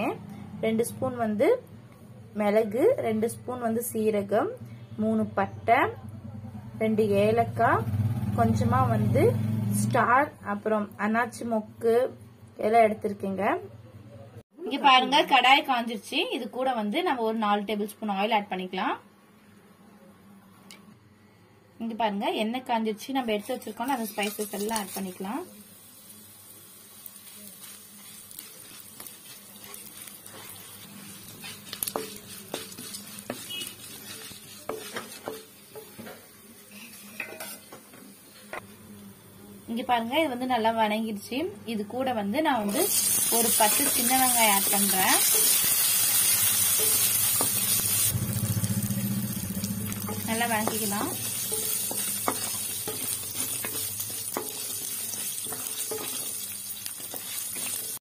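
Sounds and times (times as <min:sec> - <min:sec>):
spices sizzling in hot oil: 0:23.0 - 0:58.0
spatula scraping and tapping pan: 0:27.2 - 0:38.7, 0:43.2 - 0:47.9, 0:49.9 - 0:58.0.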